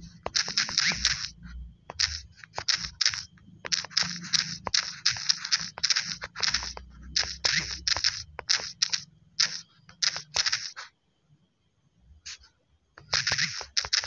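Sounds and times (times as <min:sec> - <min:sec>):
taps on phone keyboard: 0:01.9 - 0:10.8.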